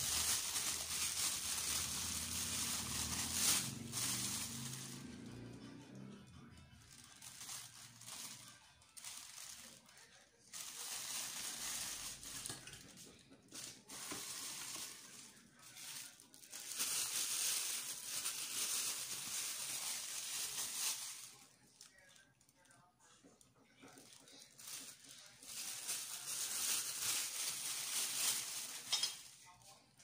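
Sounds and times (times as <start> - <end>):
plastic bag crinkling: 0.0 - 6.0, 6.9 - 22.8, 23.8 - 29.7.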